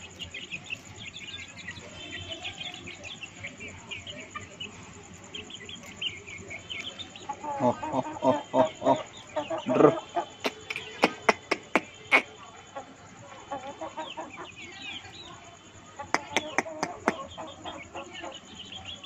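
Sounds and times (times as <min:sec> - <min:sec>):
chickens clucking: 0:00.0 - 0:19.0
chicken beaks tapping concrete: 0:10.4 - 0:12.3, 0:16.0 - 0:17.4
high bird chirps: 0:16.0 - 0:19.0.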